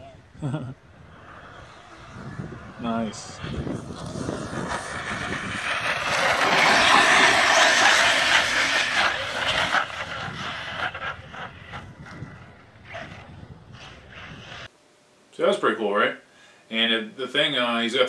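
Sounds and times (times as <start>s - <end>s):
toy car motor and tyres rushing: 1.0s - 14.7s.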